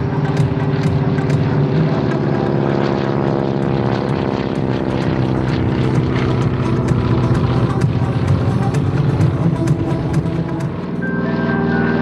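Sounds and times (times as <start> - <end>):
propeller aircraft engine droning: 0.0 - 12.0.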